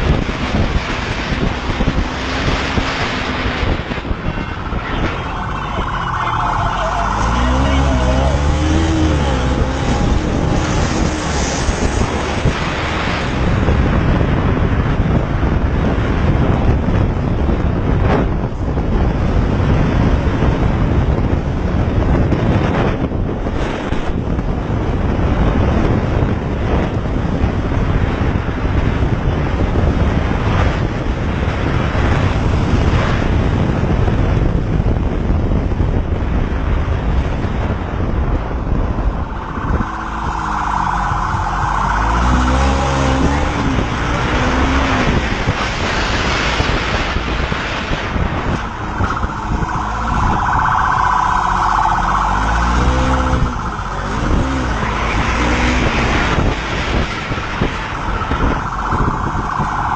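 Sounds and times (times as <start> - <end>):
wind and road noise: 0.0 - 59.9
police siren wailing: 2.5 - 13.1, 38.2 - 45.6, 46.2 - 59.9.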